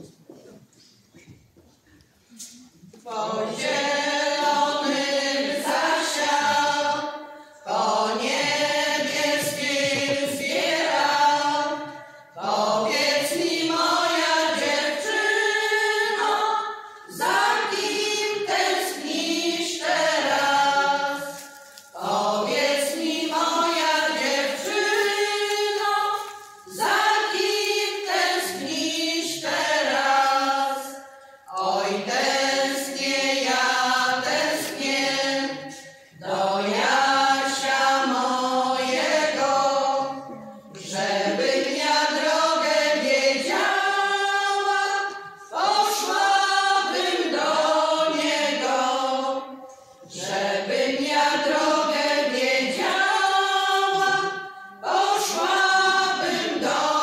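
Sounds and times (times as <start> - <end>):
women singing a cappella: 2.4 - 57.0.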